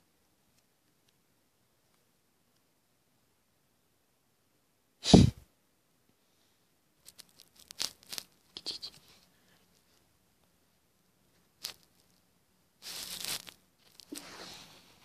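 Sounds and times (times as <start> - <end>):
scratchy clicks and rustles: 7.0 - 10.1, 11.3 - 14.8.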